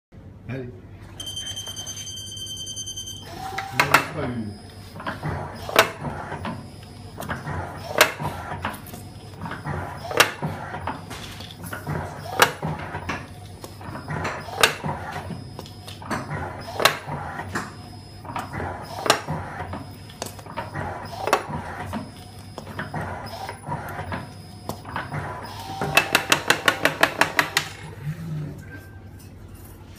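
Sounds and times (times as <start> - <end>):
machine noise and clatter: 5.0 - 29.9
machine clacking: 25.7 - 27.8.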